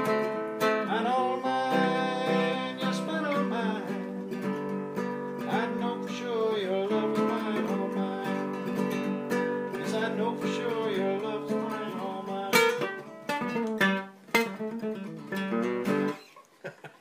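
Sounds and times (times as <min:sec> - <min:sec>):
acoustic guitar strumming: 0:00.0 - 0:16.2.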